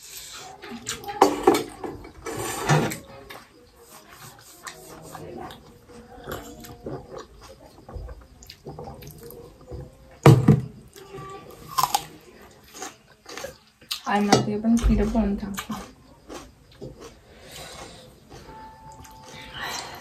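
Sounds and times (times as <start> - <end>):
chewing and slurping noodles: 15.6 - 19.9.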